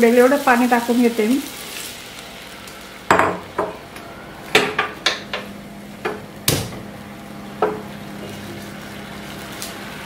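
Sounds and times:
kitchen utensils and dishes knocking: 3.1s - 3.8s, 4.6s - 6.8s.

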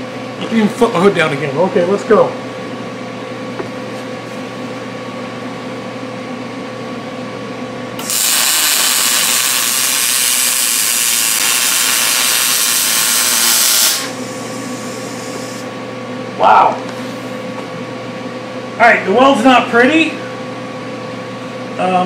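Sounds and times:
machine hum: 0.0s - 22.0s
welding arc sizzling hiss: 8.0s - 15.7s.

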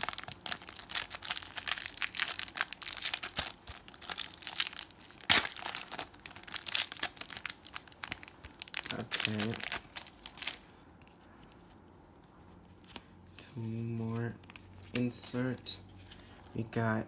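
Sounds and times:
foil wrapper crinkling: 0.0s - 10.6s
sharp loud crackle of foil: 0.0s - 10.6s.

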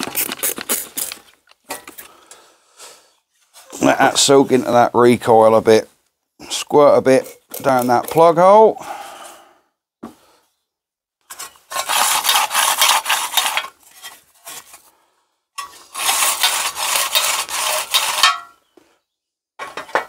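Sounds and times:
recoil starter rasping: 15.6s - 18.4s.

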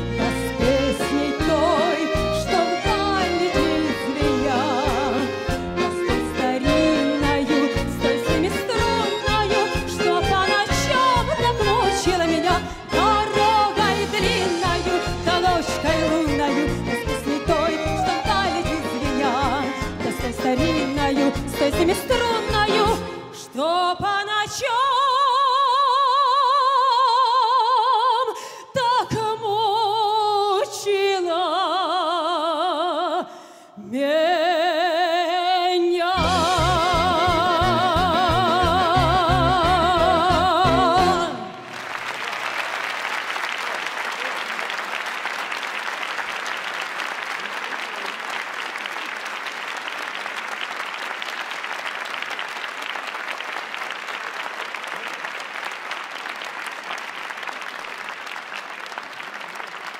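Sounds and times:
ensemble with accordion: 0.0s - 23.3s
woman singing with vibrato: 0.0s - 41.7s
audience applauding: 41.4s - 59.9s.

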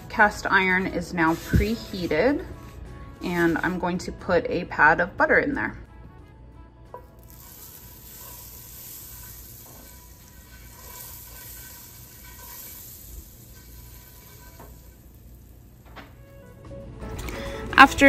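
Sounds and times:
butter sizzling in a skillet: 7.1s - 16.3s.

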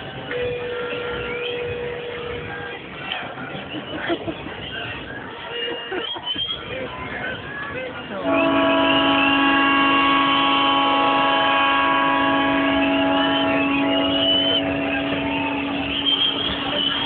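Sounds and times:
horns held in long notes: 0.0s - 2.9s, 8.2s - 17.0s
stadium crowd noise: 0.0s - 17.0s
brief whistles: 0.4s - 2.6s, 4.6s - 6.9s, 12.6s - 17.0s.

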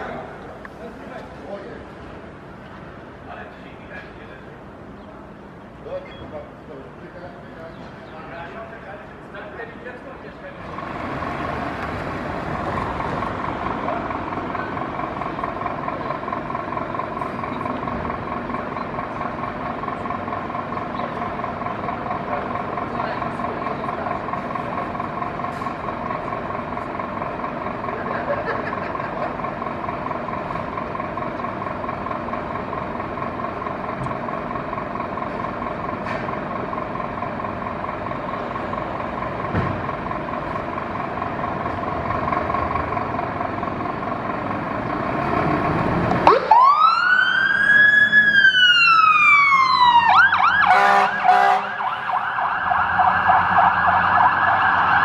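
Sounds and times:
fire engine running: 0.0s - 55.0s
siren wailing: 46.2s - 55.0s.

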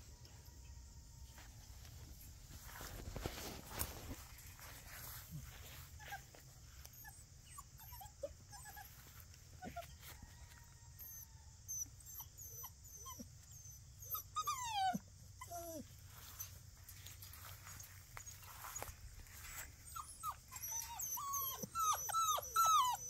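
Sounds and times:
puppies squeaking and whimpering: 7.0s - 9.9s, 11.1s - 15.8s, 19.8s - 23.0s
puppy whine falling in pitch: 20.0s - 23.0s.

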